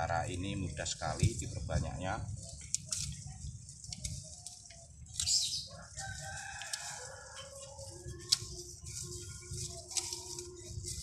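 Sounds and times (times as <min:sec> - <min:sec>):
rooster crowing: 0:05.6 - 0:08.3.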